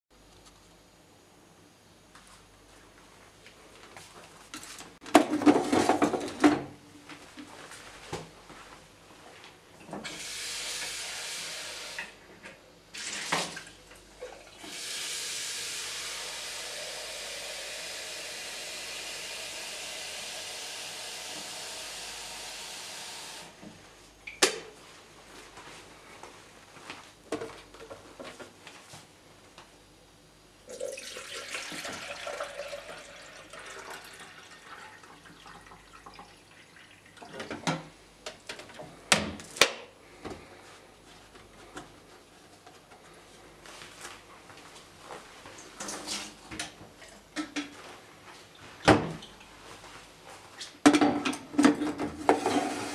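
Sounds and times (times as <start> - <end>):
kitchen tap running: 13.0 - 22.8, 30.7 - 37.5.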